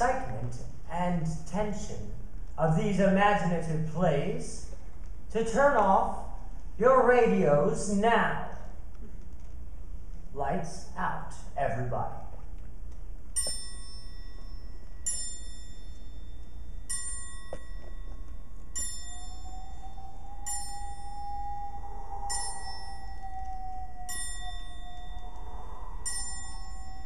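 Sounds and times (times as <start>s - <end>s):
steady held tone: 13.3s - 27.0s.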